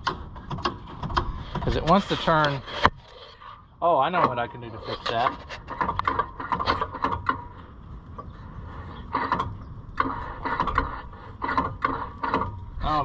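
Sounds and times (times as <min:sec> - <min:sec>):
golf cart starter cranking: 0:05.1 - 0:07.6, 0:09.0 - 0:13.0.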